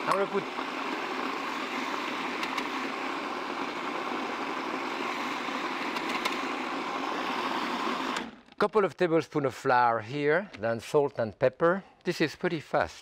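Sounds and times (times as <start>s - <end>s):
food processor running: 0.0s - 8.6s.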